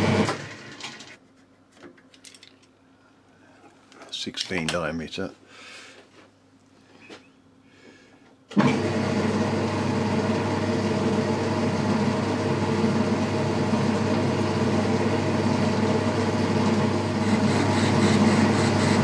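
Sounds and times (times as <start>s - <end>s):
metal lathe motor running: 10.8s - 19.0s.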